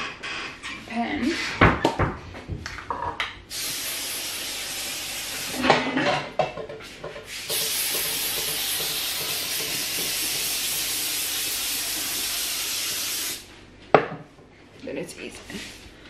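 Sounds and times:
aerosol spray hissing: 3.5s - 5.6s, 7.3s - 13.4s.

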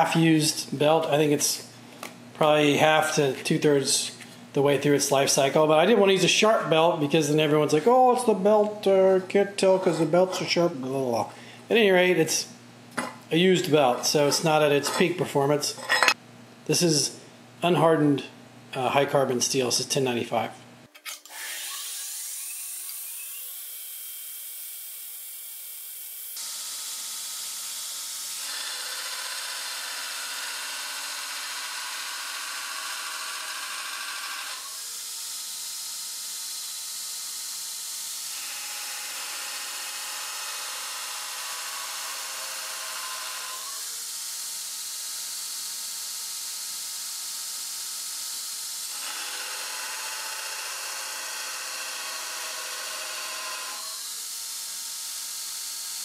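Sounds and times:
belt grinder grinding steel: 28.3s - 34.9s, 38.1s - 44.0s, 48.3s - 56.0s.

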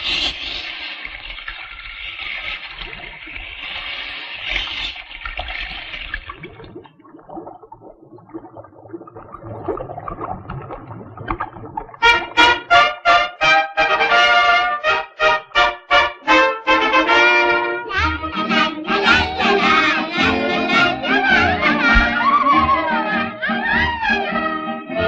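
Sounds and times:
water rushing and splashing: 0.0s - 13.0s.

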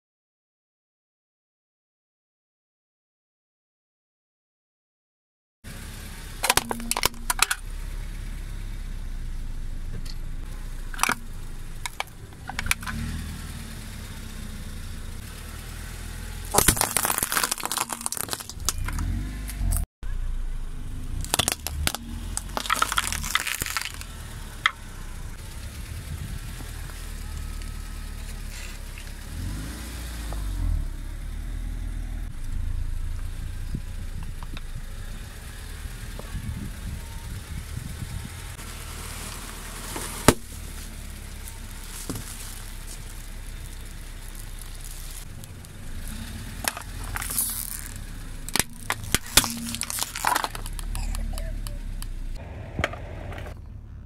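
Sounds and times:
car engine running low: 5.7s - 54.0s
tyre crushing brittle objects: 16.4s - 19.8s, 21.1s - 24.8s, 39.1s - 51.4s.

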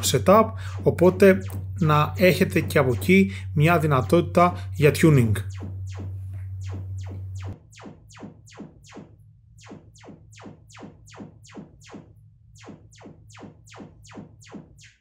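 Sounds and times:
speaker playing falling tone sweeps: 0.0s - 7.6s.

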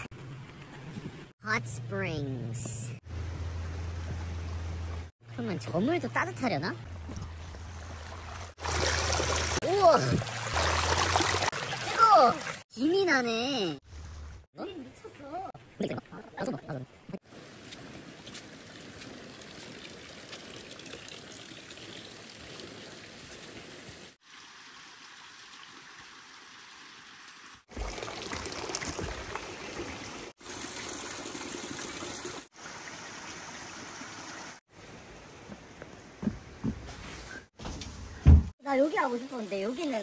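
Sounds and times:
water trickling into a tub: 7.7s - 12.7s, 18.4s - 34.6s.

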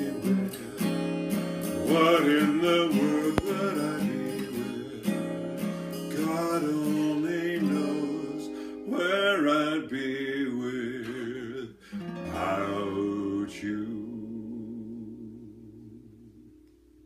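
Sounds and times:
acoustic guitar strumming: 0.0s - 14.5s
man singing held notes: 1.8s - 5.2s.

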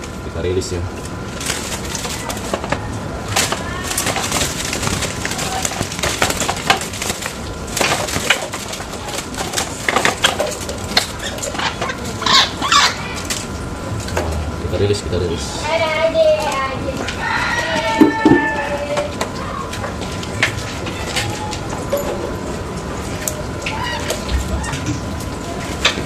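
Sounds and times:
bird flapping in cage: 1.3s - 14.4s.

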